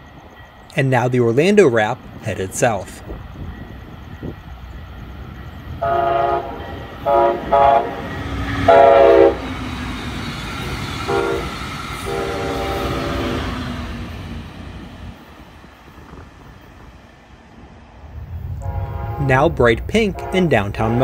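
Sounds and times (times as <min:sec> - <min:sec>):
passing train rumbling: 0:00.0 - 0:21.0
train chime horn blasts: 0:05.8 - 0:09.5, 0:11.1 - 0:13.5, 0:18.6 - 0:19.5, 0:20.1 - 0:21.0.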